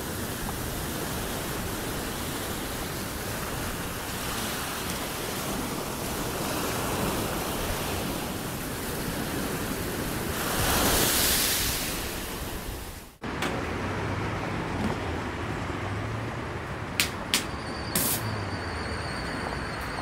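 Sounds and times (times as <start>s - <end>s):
ocean surf washing in: 0.0s - 14.0s.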